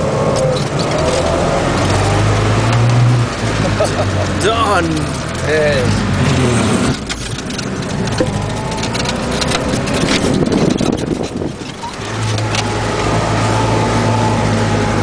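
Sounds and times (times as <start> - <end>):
van body rattling and knocking: 0.0 - 13.8
road and wind noise: 0.0 - 15.0.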